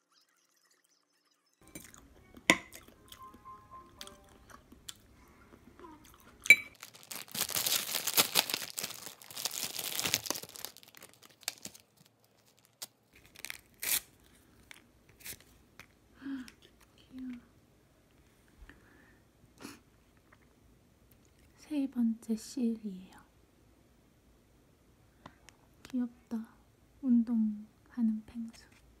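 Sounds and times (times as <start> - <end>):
plastic wrapper crinkling: 6.2 - 15.5.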